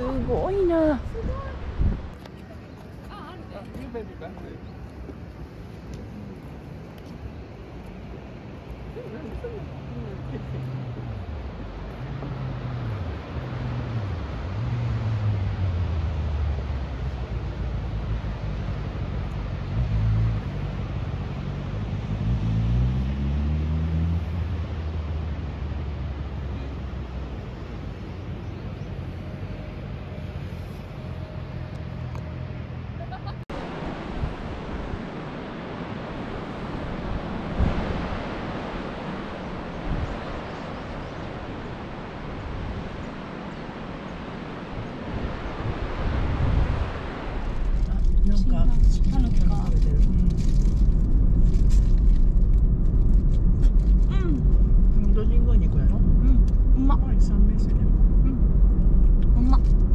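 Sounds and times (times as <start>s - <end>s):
wind buffeting microphone: 0.0s - 15.6s, 33.4s - 59.9s
car engine rumbling: 8.9s - 59.9s
sea surf rushing: 32.8s - 49.8s.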